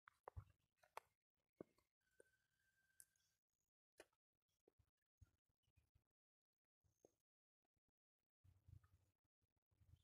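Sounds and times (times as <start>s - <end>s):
faint steady high tone: 2.0s - 3.6s.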